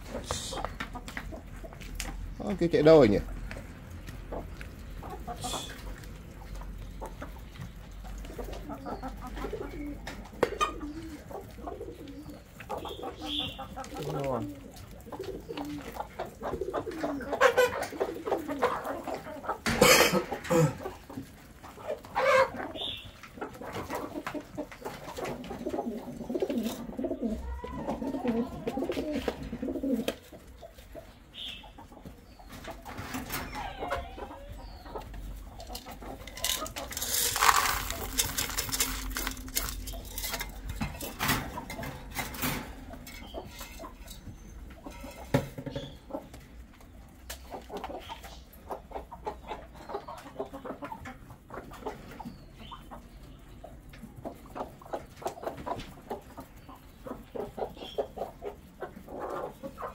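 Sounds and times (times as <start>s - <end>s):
chickens clucking: 0.0s - 59.9s
pigeons cooing: 4.1s - 46.4s
loud rustling: 36.2s - 41.5s.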